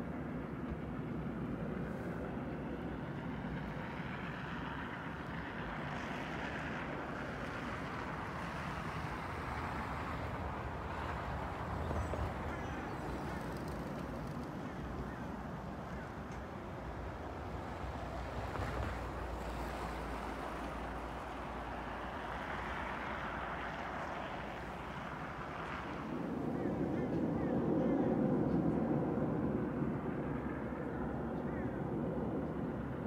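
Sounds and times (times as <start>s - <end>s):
cars passing on road: 2.9s - 27.5s.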